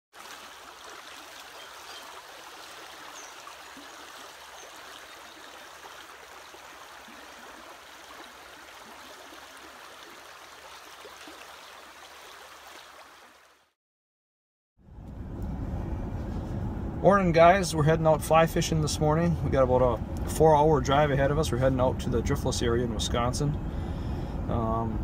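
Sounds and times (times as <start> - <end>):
creek rushing over shallows: 0.1 - 13.8.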